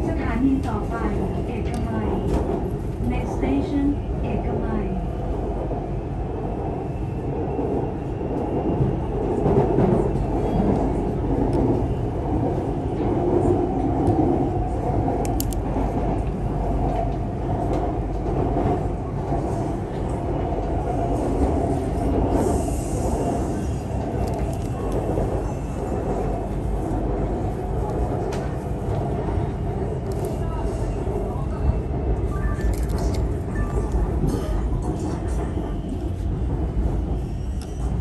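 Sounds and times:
train wheels and motors running: 14.0s - 16.3s.

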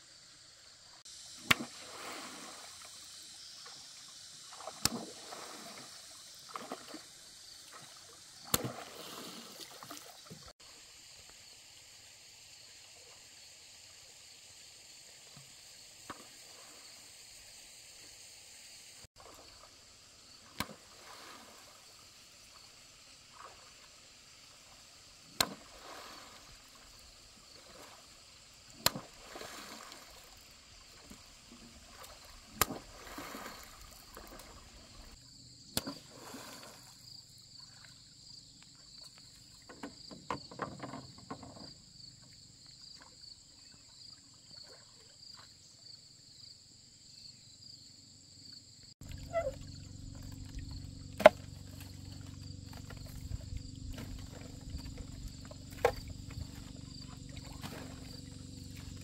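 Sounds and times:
sharp slaps on water: 1.4s - 1.9s, 4.5s - 5.4s, 8.4s - 10.1s, 20.4s - 20.9s, 25.3s - 26.0s, 28.7s - 30.3s, 31.9s - 34.5s, 35.7s - 36.2s, 51.2s - 51.5s
rowing boat splashing: 1.4s - 10.5s, 24.6s - 35.2s, 35.8s - 38.2s, 49.0s - 59.0s
pulsing high insect buzz: 49.0s - 59.0s.

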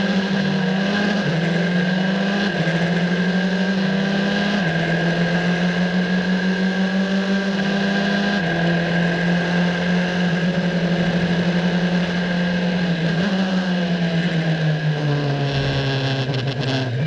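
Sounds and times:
race car engine at high revs: 0.0s - 17.0s.

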